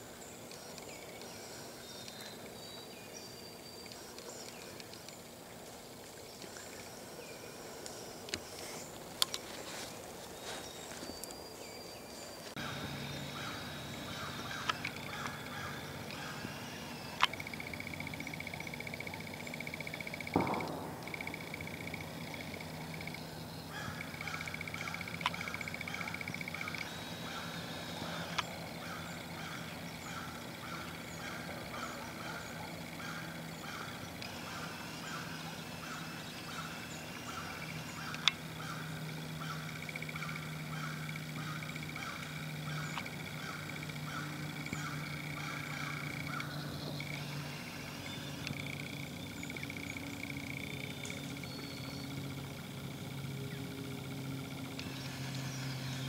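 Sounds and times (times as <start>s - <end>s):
low steady hum: 0.0s - 56.0s
repeating pulsed call: 6.3s - 56.0s
steady high trill: 12.5s - 31.0s
sharp clicks: 14.2s - 23.3s, 37.6s - 38.5s
loud thump: 20.4s - 21.4s.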